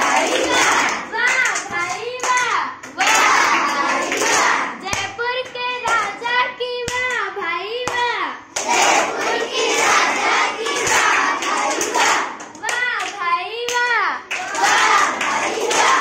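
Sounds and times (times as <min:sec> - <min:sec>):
children chanting: 0:00.0 - 0:05.0, 0:08.6 - 0:13.1, 0:14.3 - 0:16.0
hands clapping: 0:00.0 - 0:06.1, 0:06.8 - 0:16.0
child singing alone: 0:01.0 - 0:02.8, 0:04.8 - 0:08.4, 0:12.6 - 0:14.3.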